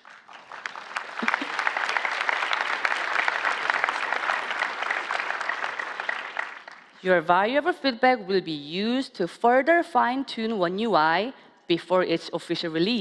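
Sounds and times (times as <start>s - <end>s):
large audience applauding: 0.0s - 7.0s.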